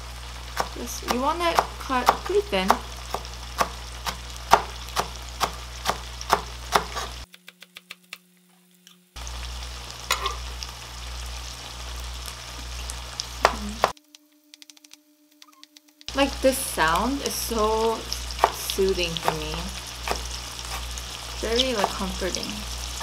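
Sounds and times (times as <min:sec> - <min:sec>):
oil sizzling in a pan: 0:00.0 - 0:07.3, 0:09.2 - 0:14.0, 0:16.1 - 0:23.0
knife slicing on cutting board: 0:06.8 - 0:07.2.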